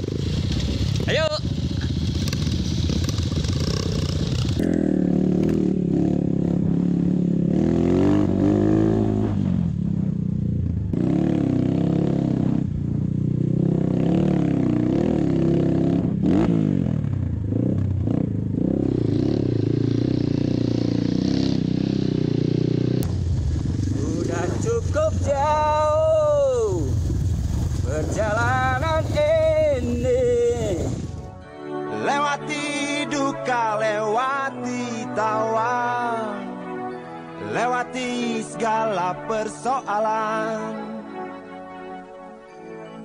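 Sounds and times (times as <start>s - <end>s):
motorcycle engine revving: 0.0s - 31.3s.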